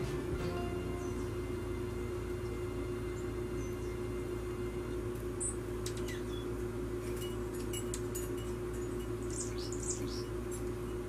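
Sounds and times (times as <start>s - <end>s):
steady low hum: 0.0s - 11.0s
songbirds chipping: 2.2s - 11.0s.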